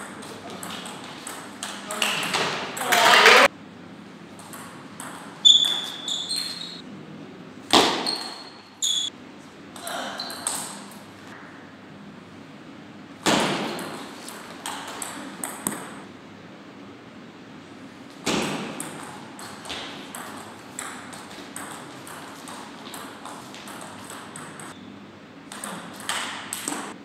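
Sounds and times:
table tennis ball hits: 0:13.2 - 0:16.0, 0:18.2 - 0:24.8, 0:25.5 - 0:27.0.

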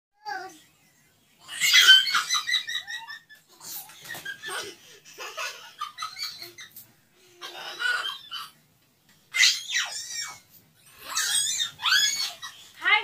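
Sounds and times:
women laughing: 0:01.6 - 0:06.8.

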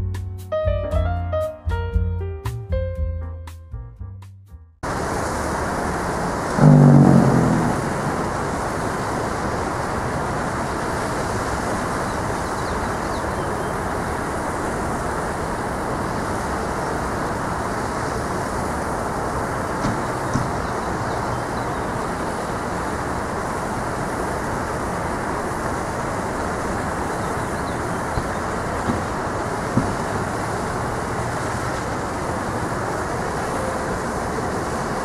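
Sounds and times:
siren low rushing growl: 0:06.5 - 0:09.4
low siren tone: 0:06.6 - 0:09.1.

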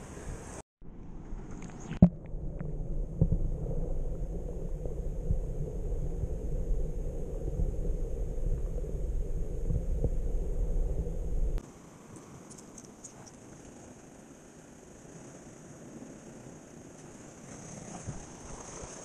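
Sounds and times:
faint high whine: 0:00.0 - 0:19.0
underwater seawater surge rumble: 0:02.0 - 0:11.6
faint ticks: 0:12.1 - 0:13.8.

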